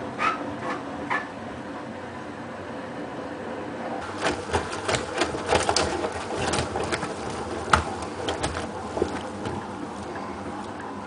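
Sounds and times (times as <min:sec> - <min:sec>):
washing machine motor hum: 0:00.0 - 0:11.0
drum clicks and knocks: 0:04.0 - 0:10.1.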